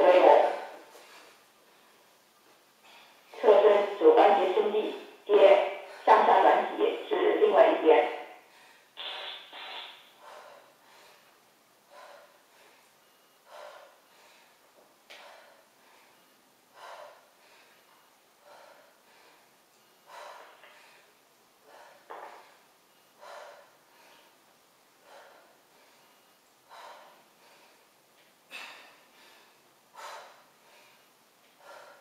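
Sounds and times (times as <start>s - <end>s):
person breathing heavily: 8.4s - 32.0s.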